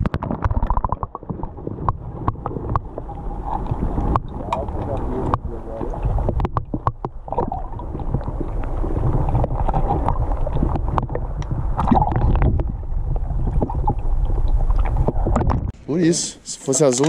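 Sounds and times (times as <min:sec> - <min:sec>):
sharp underwater clicks: 0:00.0 - 0:12.7
muffled underwater churning: 0:00.0 - 0:15.9.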